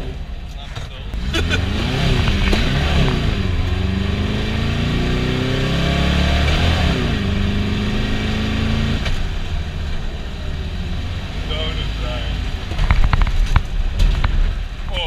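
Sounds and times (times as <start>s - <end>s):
car engine revving from inside: 1.1s - 9.4s.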